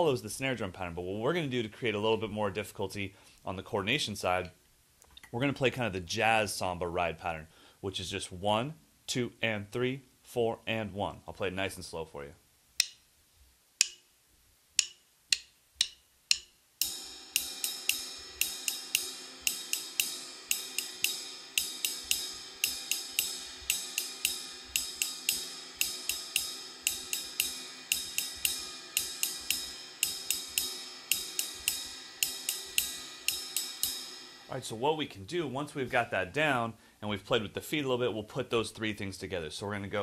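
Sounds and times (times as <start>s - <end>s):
ride cymbal pattern: 14.8s - 35.1s.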